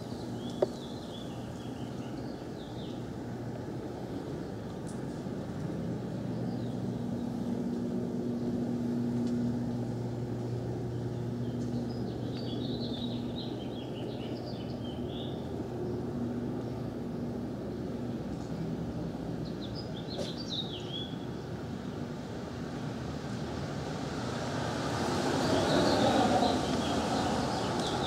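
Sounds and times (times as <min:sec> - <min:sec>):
low mechanical hum: 0:00.0 - 0:28.0
birds chirping: 0:09.7 - 0:17.4, 0:25.4 - 0:28.0.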